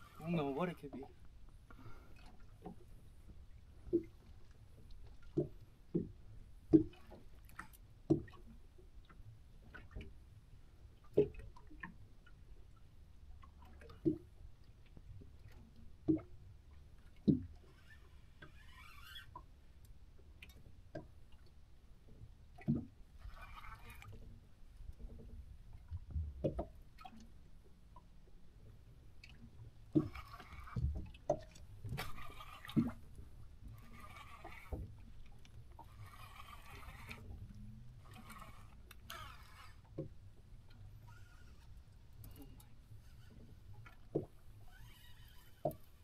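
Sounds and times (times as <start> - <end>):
water slapping against boat hull: 2.2 - 10.2, 11.0 - 12.0, 13.6 - 16.4, 17.1 - 17.7, 22.5 - 24.4, 25.0 - 27.3, 29.2 - 40.6, 43.3 - 46.0.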